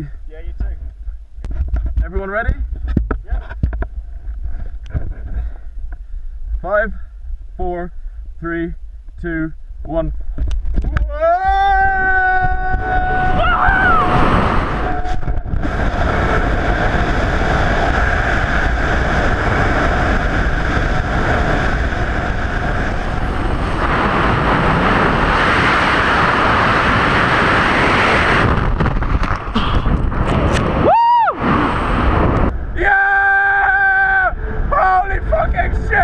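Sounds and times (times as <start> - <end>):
freefall wind rushing: 9.6 - 36.0.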